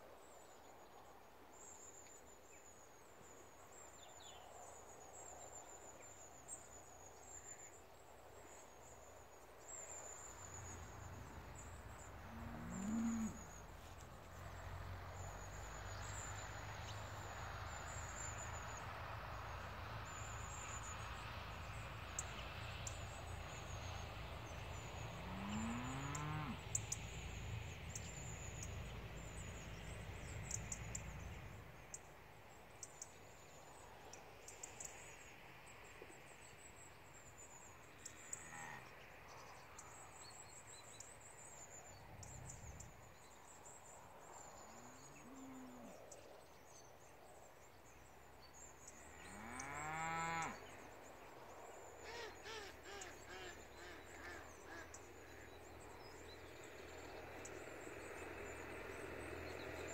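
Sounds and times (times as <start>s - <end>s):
small birds singing: 8.5s - 18.9s
cows mooing: 12.3s - 13.4s, 25.2s - 26.6s, 49.4s - 50.6s.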